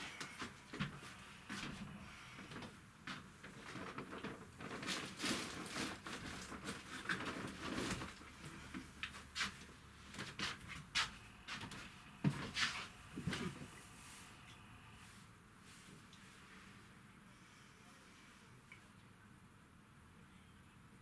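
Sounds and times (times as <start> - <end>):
person moving about: 0.0 - 16.9.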